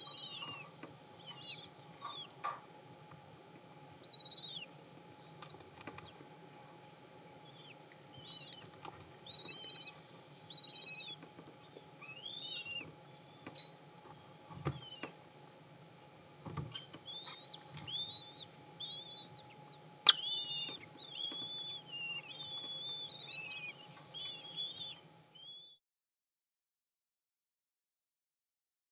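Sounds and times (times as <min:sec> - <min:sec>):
chicks cheeping: 0:00.0 - 0:02.4, 0:04.0 - 0:11.2, 0:12.0 - 0:15.1, 0:16.6 - 0:25.8.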